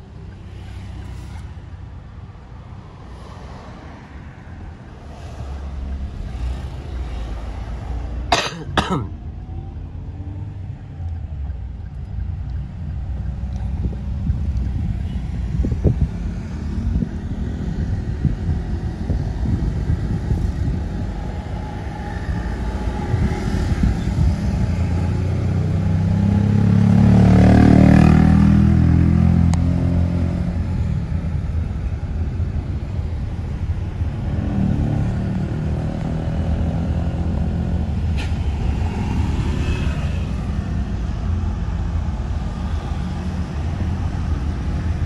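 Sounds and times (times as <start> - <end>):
low road traffic rumble: 0.0 - 45.0
vehicle passing close: 12.7 - 45.0.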